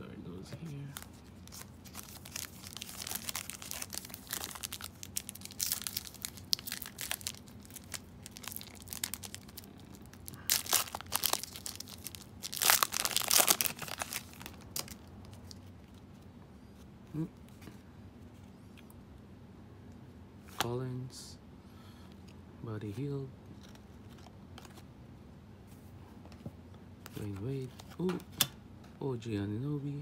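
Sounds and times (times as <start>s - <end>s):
foil wrapper crinkling and tearing: 0.8s - 16.0s.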